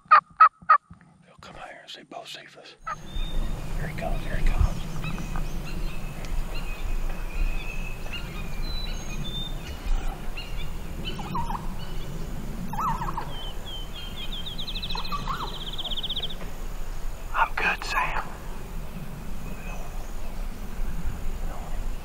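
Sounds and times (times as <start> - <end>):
songbirds chirping: 1.2 - 22.0
songbird trill: 2.8 - 18.2
raspy turkey calls: 12.7 - 13.5, 14.9 - 15.9.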